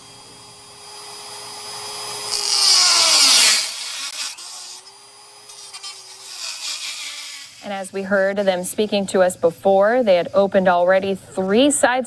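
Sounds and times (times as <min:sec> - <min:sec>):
electric rotary tool grinding: 0:00.0 - 0:08.6.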